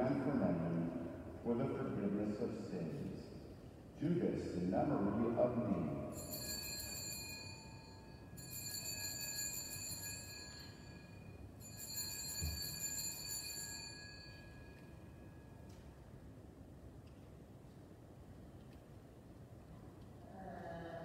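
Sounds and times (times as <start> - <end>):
altar bells ringing: 6.1 - 15.7.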